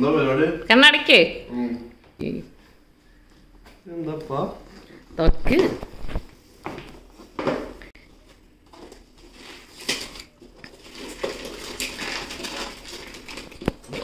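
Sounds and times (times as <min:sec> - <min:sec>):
wrapping paper tearing and crinkling: 0:08.8 - 0:14.0.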